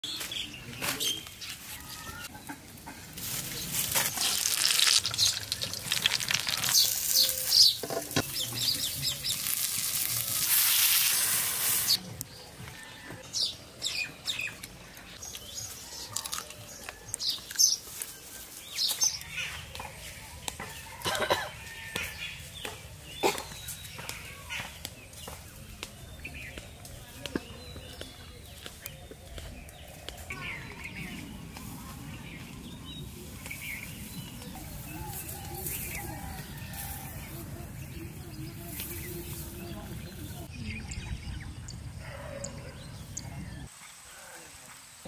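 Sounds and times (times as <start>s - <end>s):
birds chirping: 0.0s - 45.0s
chickens clucking: 2.2s - 3.4s
fish sizzling and crackling: 3.2s - 12.0s.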